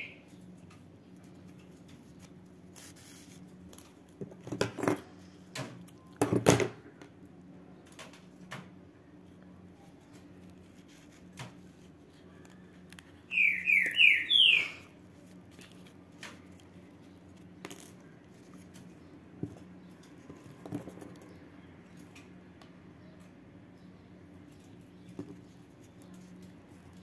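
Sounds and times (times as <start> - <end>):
ribbon and thread rustling: 1.4 - 5.0, 9.8 - 13.3, 14.9 - 21.2
loud falling chirps: 13.3 - 14.9.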